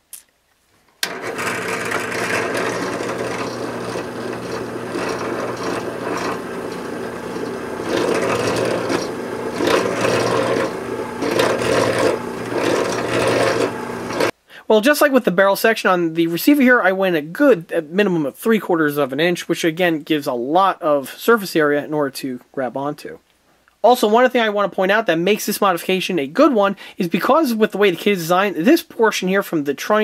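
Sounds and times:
drill bit scraping metal: 0:01.0 - 0:14.3
drill press motor hum: 0:01.0 - 0:14.3.

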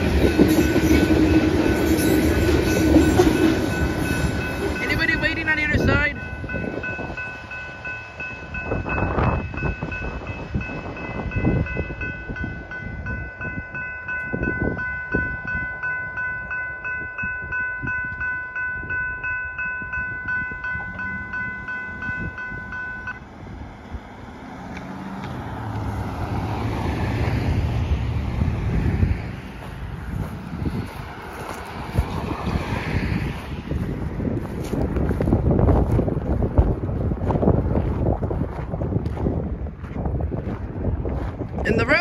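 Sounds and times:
railroad crossing bell ringing: 0:00.0 - 0:23.3
wind buffeting microphone: 0:00.0 - 0:42.0.

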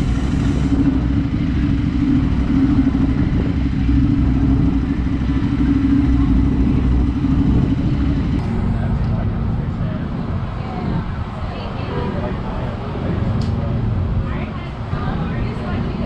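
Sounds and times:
motorcycle engine running: 0:00.0 - 0:16.0.

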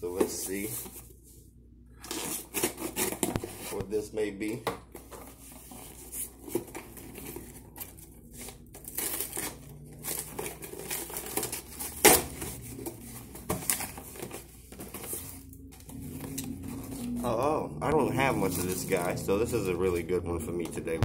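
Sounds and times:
cardboard flaps rustling: 0:04.9 - 0:16.3
packing tape tearing: 0:05.8 - 0:14.4.

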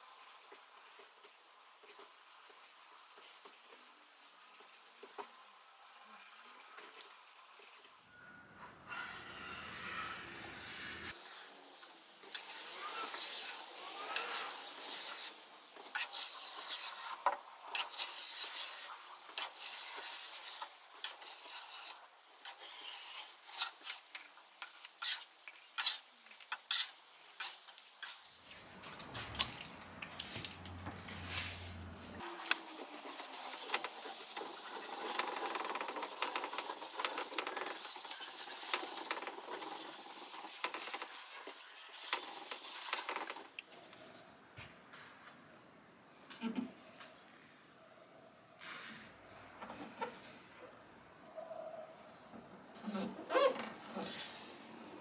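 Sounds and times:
metal scraper scraping wood: 0:24.6 - 0:28.6.

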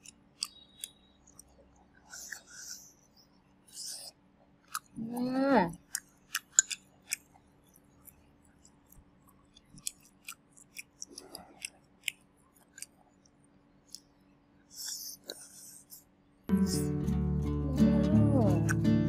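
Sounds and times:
person chewing with wet mouth clicks: 0:00.0 - 0:02.8, 0:03.7 - 0:05.0, 0:05.7 - 0:14.1.

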